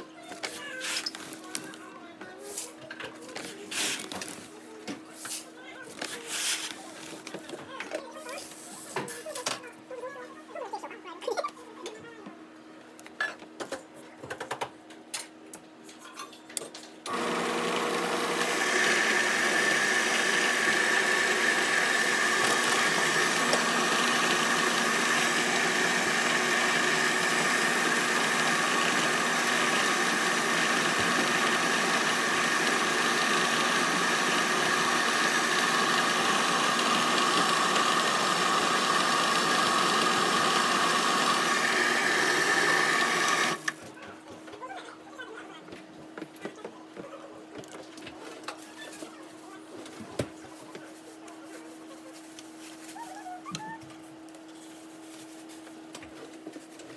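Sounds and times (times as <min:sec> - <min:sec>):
rice polishing machine running: 0:17.1 - 0:43.7.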